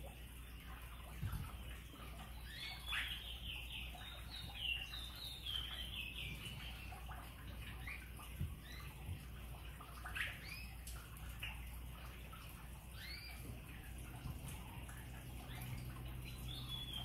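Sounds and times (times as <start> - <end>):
small bird singing: 0.4 - 9.2, 10.0 - 10.9, 12.8 - 13.9, 15.2 - 17.0.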